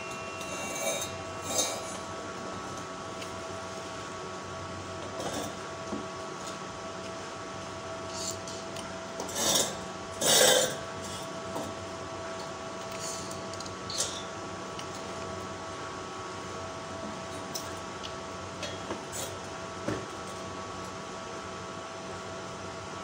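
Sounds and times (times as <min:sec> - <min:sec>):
steady hum: 0:00.0 - 0:23.0
metal clanks and scrapes: 0:00.4 - 0:02.0, 0:09.2 - 0:11.2.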